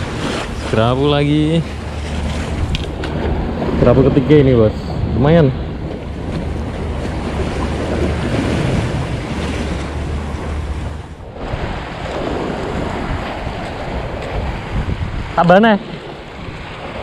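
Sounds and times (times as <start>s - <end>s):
waves washing over rocks: 0.0s - 17.0s
wind rumbling on microphone: 0.0s - 17.0s.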